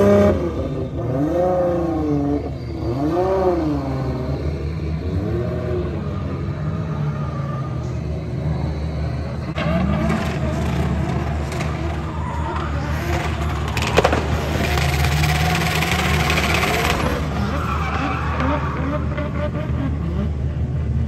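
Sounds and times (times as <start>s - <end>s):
car engine revving: 0.0s - 21.0s
tyres screeching: 9.3s - 19.8s.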